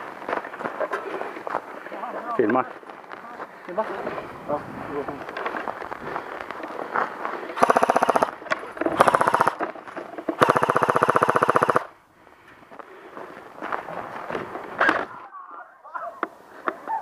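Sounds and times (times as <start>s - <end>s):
airsoft rifle firing full auto: 7.6s - 8.4s, 9.0s - 9.6s, 10.4s - 11.9s.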